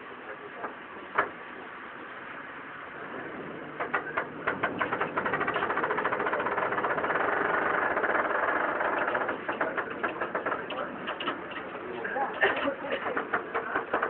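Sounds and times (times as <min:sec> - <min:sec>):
tram running rattle: 0:03.0 - 0:14.0.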